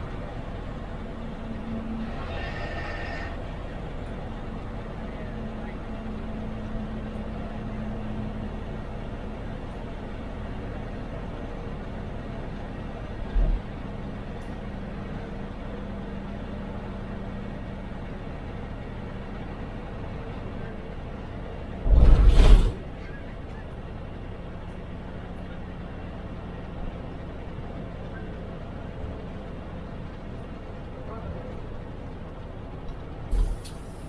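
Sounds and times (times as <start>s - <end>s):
bus diesel engine: 0.0s - 34.0s
road noise: 0.0s - 34.0s
brief burst of noise: 21.9s - 22.9s.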